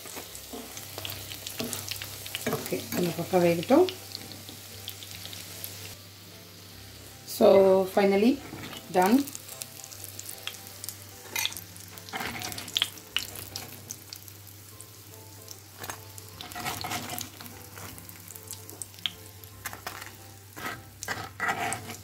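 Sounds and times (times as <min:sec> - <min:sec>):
food sizzling in hot oil: 0:00.0 - 0:22.0
metal spoon scraping a pan: 0:08.2 - 0:09.1, 0:11.2 - 0:13.7, 0:15.8 - 0:18.0, 0:19.6 - 0:22.0.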